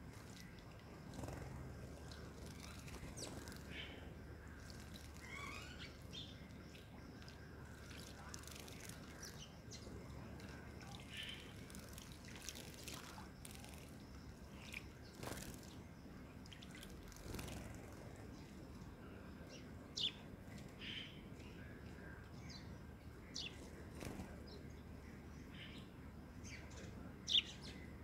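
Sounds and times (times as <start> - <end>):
birds splashing in water: 0.0 - 18.3.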